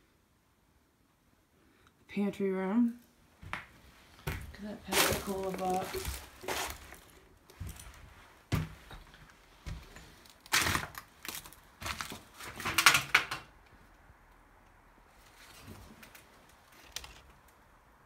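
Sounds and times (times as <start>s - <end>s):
footsteps on wooden floorboards: 3.4s - 10.0s.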